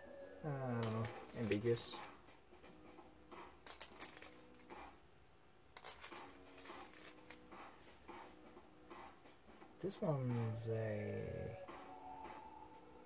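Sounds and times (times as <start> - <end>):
plastic toy bricks clicking: 3.6 - 4.6, 5.8 - 7.4.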